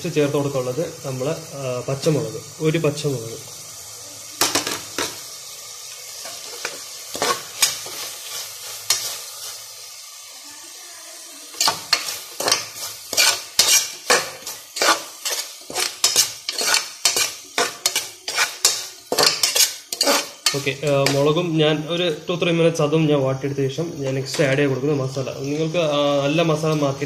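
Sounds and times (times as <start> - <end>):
vegetables sizzling in oil: 0.0 - 27.0
spatula scraping pot base: 11.5 - 21.3.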